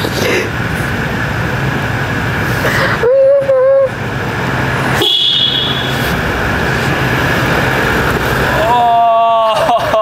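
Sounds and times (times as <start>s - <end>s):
vehicle engine running: 0.0s - 10.0s
loud held tone: 5.0s - 6.1s.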